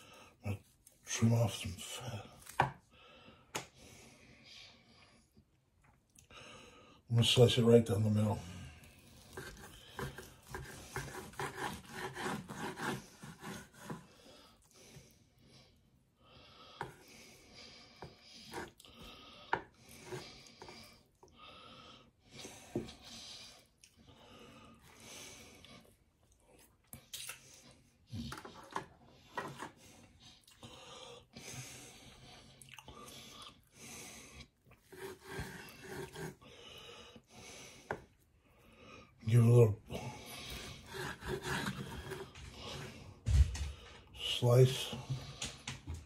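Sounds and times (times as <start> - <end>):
knife on wooden cutting board: 9.3 - 14.0, 34.9 - 36.3.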